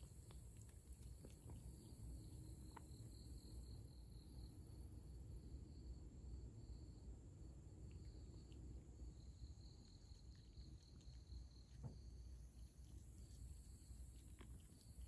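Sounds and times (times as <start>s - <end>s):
cat crunching dry kibble: 0.0s - 3.1s, 10.4s - 15.0s
low background rumble: 0.0s - 15.0s
night insects chirping: 0.0s - 15.0s.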